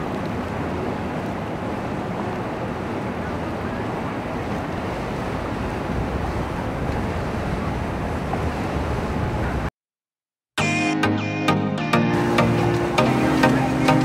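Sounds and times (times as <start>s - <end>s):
water and boat noise: 0.0s - 9.7s, 10.6s - 14.0s
wind on microphone: 0.0s - 9.7s.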